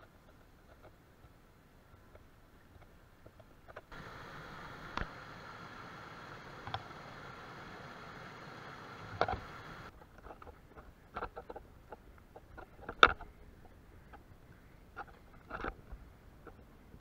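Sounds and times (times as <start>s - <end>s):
water rushing over a weir: 3.9s - 9.9s.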